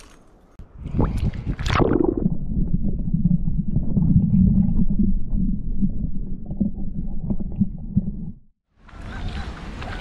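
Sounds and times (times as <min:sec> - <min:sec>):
water gurgles and bubbles: 0:00.8 - 0:08.5
muffled underwater rumble: 0:01.0 - 0:08.5.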